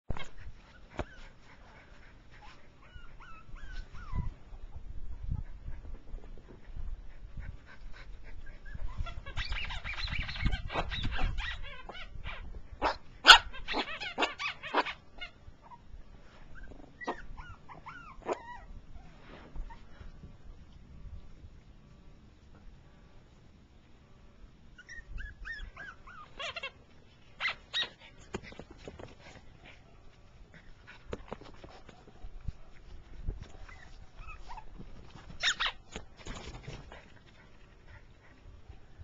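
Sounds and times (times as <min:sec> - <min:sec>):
puppies whimpering and yipping: 0:02.4 - 0:04.7, 0:08.3 - 0:12.5, 0:13.3 - 0:15.9, 0:16.5 - 0:19.9, 0:24.8 - 0:28.3, 0:33.6 - 0:34.8, 0:35.4 - 0:35.8
scuffling noise: 0:19.0 - 0:20.4.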